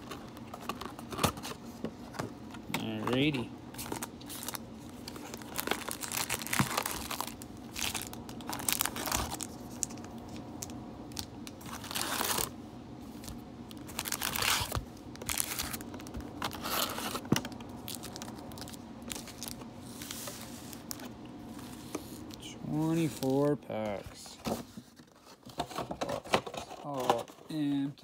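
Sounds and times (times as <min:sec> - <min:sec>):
foil packs crinkling: 0:02.8 - 0:12.5, 0:13.1 - 0:24.4.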